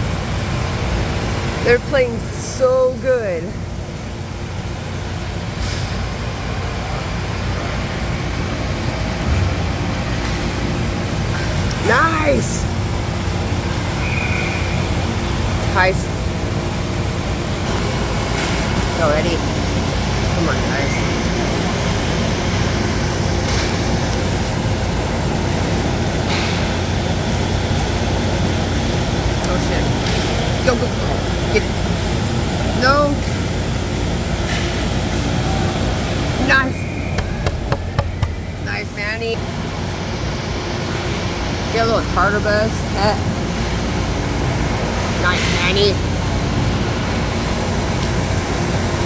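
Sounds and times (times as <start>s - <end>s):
hall background noise: 0.0s - 49.0s
building hum: 6.1s - 42.6s.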